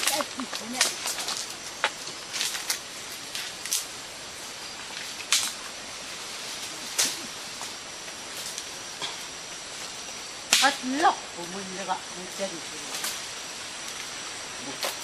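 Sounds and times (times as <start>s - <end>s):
steady hiss: 0.0s - 15.0s.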